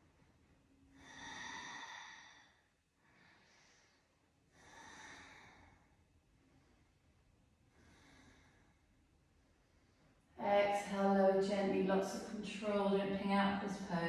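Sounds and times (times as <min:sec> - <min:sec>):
woman breathing slowly: 0:00.0 - 0:10.4.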